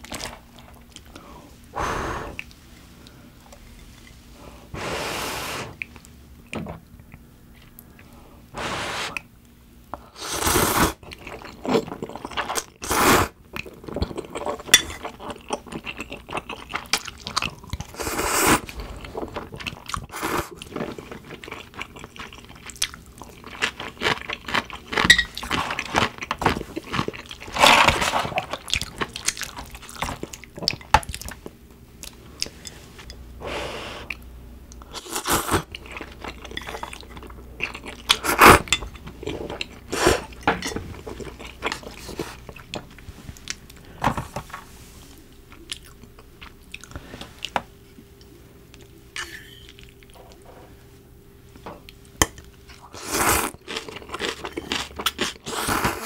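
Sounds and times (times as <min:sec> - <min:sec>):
chewing: 0:13.5 - 0:32.8, 0:34.1 - 0:43.8, 0:45.5 - 0:47.5.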